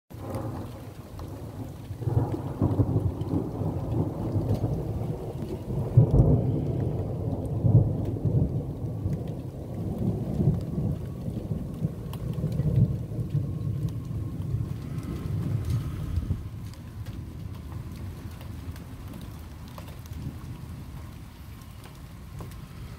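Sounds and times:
thunder rumbling: 0.1 - 22.9.

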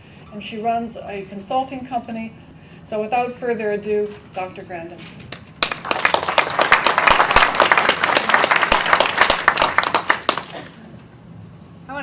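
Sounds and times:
audience applauding: 5.6 - 10.7.

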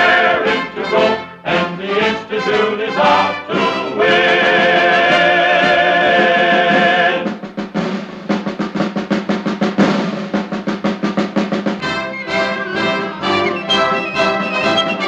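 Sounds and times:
choir holding a chord: 0.0 - 7.2, 11.8 - 14.8
brass: 0.0 - 8.0, 11.6 - 15.0
military-style snare drumming: 0.0 - 15.0.

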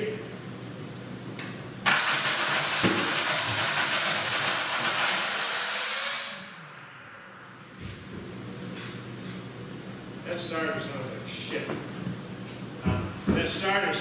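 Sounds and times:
starter motor cranking engine: 1.9 - 5.3.

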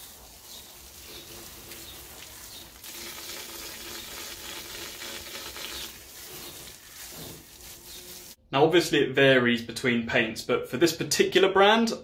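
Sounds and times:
garden hose spraying water: 0.0 - 8.4.

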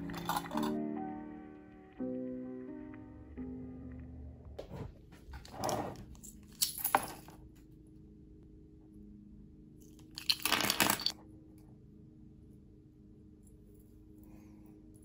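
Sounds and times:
plastic cases rattling and clicking: 10.2 - 11.1.

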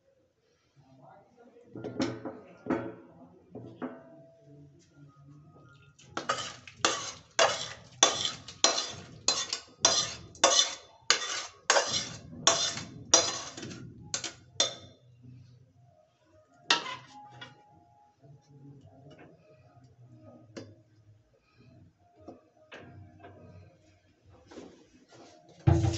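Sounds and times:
metal utensil scraping steel bowl: 6.2 - 15.0, 16.7 - 17.2.

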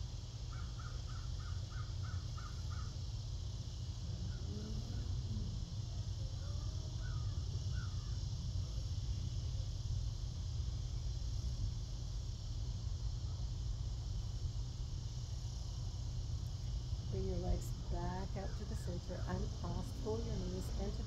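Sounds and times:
steady low rumble: 0.0 - 21.0
bird calling: 0.5 - 3.0.

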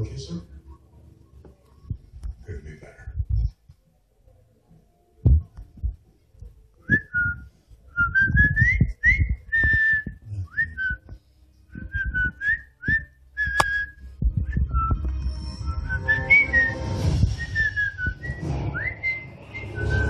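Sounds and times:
person whistling sliding notes: 11.8 - 20.0.

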